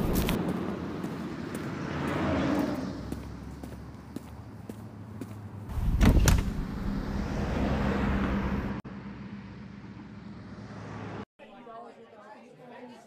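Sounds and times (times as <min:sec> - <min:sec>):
traffic rumble: 0:00.0 - 0:11.3
vehicle passing by: 0:00.0 - 0:11.3.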